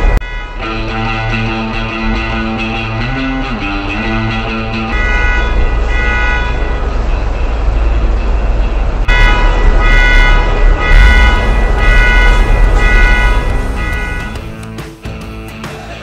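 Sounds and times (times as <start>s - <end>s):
engine rumble: 0.0s - 14.8s
police siren on and off: 9.1s - 14.5s.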